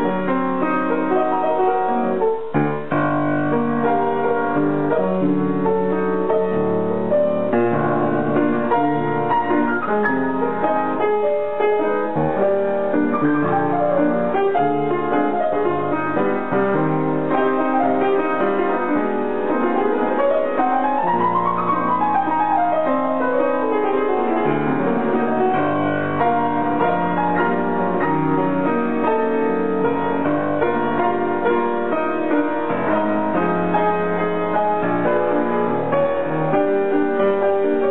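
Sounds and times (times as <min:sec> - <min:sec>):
grand piano playing: 0:00.0 - 0:37.9.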